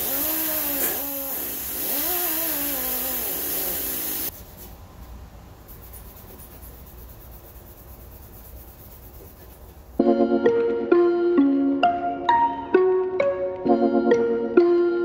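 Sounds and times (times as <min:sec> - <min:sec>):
loud hissing noise: 0:00.0 - 0:04.3.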